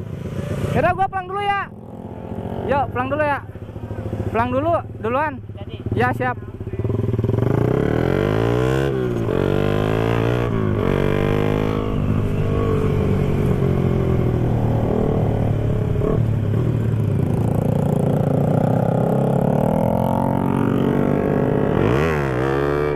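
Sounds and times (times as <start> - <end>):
motorcycle engine accelerating: 0.0 - 22.9.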